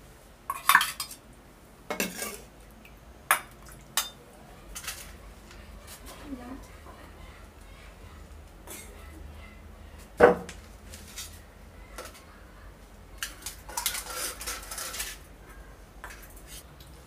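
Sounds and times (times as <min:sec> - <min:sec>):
metal bowls and plates clinking: 0:01.9 - 0:02.5, 0:03.3 - 0:05.2, 0:08.7 - 0:09.0
metal dishes clattering: 0:01.9 - 0:02.5.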